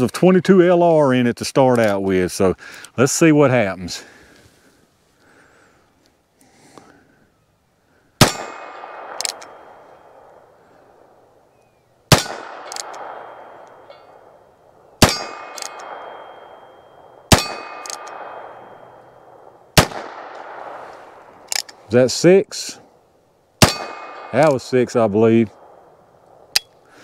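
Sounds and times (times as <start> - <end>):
revolver hammer cocking click: 8.9 - 9.6, 12.1 - 14.0, 15.0 - 16.2, 17.3 - 18.4
ring of steel target hit: 15.0 - 19.2.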